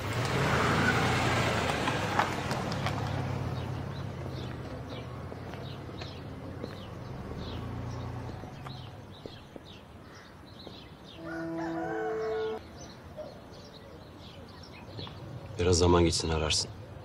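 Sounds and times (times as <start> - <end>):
low vehicle engine hum: 0.0 - 9.8
small birds chirping: 2.6 - 17.0
rooster crowing: 11.2 - 12.6.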